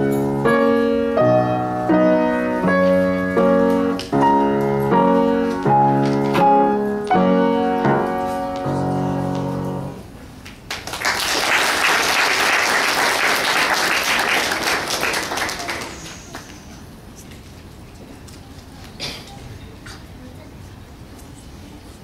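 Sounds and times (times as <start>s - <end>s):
piano duet chords: 0.0s - 10.1s
audience applause: 10.7s - 16.5s.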